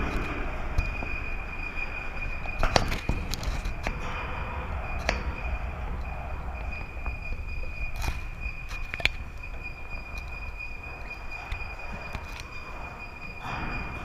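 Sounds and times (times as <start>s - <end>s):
high-pitched insect drone: 0.0s - 14.0s
low rumble: 0.0s - 14.0s
sharp clicks: 5.0s - 12.8s.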